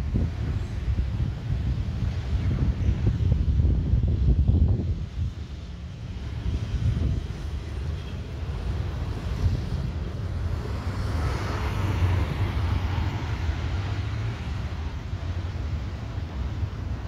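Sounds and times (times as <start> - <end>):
wind rumble on microphone: 0.0 - 17.0
distant jet noise: 4.9 - 17.0.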